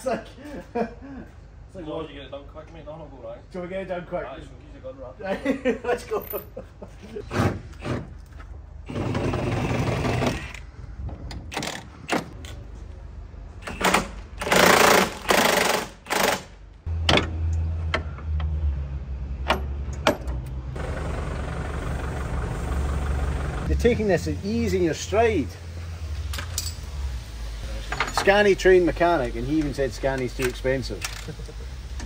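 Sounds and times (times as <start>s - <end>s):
rattling power tool: 8.9s - 10.6s, 13.7s - 16.6s
forklift engine idling: 20.8s - 23.8s.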